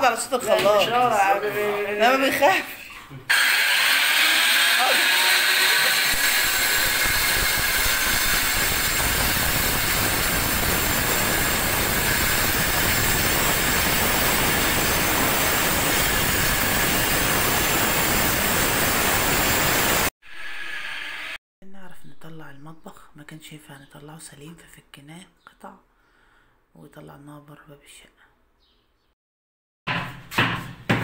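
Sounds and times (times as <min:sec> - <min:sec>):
power tool grinding tile: 0:03.3 - 0:20.1.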